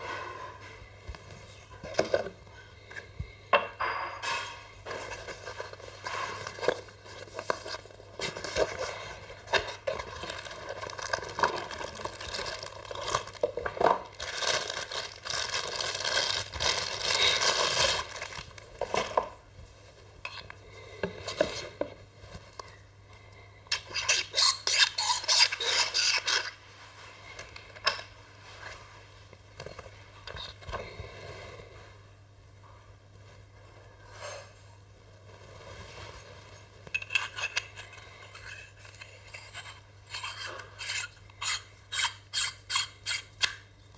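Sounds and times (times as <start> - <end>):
plastic wrapping crinkling: 4.9 - 20.0.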